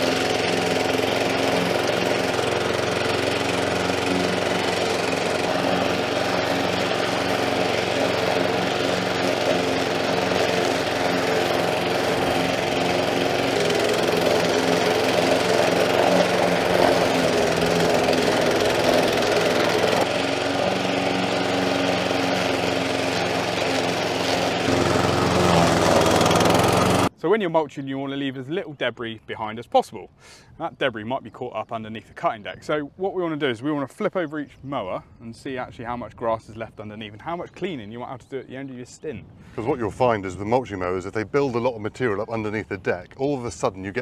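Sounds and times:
lawn mower engine running: 0:00.0 - 0:27.1.

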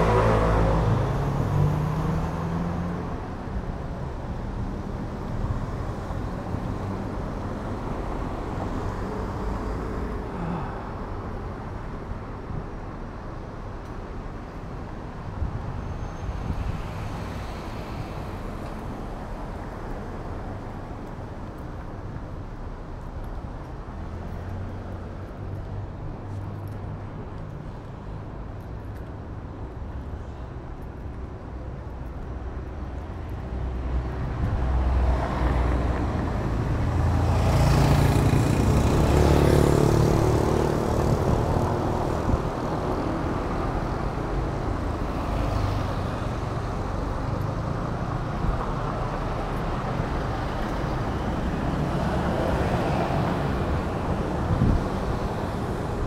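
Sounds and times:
cars driving past: 0:00.0 - 0:03.2, 0:32.9 - 0:56.0.

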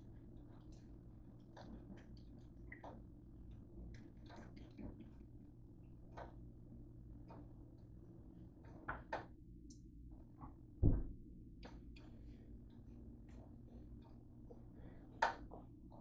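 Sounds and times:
low steady hum: 0:00.0 - 0:16.0
dull heavy thump: 0:10.8 - 0:11.2.

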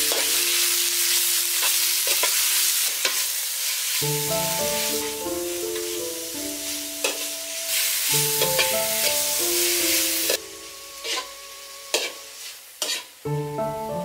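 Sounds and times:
beef sizzling in a wok: 0:00.0 - 0:14.0
metal ladle scraping a pan: 0:07.0 - 0:09.2, 0:11.0 - 0:13.1.

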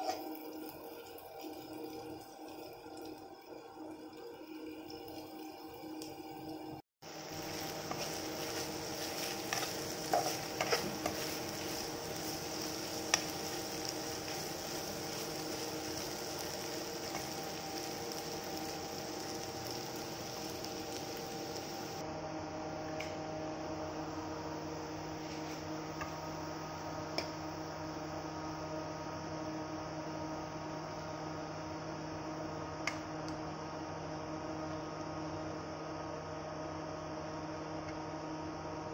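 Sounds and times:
food sizzling in frying pan: 0:00.0 - 0:22.0
steady hum: 0:00.0 - 0:38.9.

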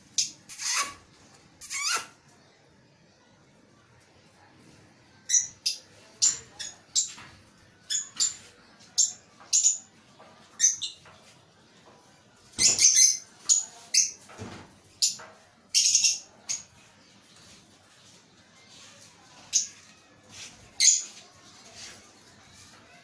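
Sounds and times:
parrots chirping: 0:00.1 - 0:02.1.

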